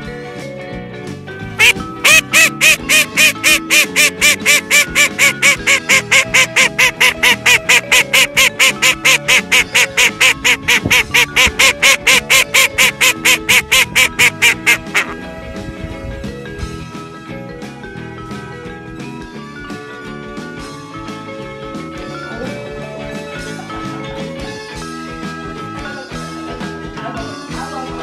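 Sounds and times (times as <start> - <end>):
background music: 0.0 - 28.0
duck quacking rapidly: 1.6 - 15.2.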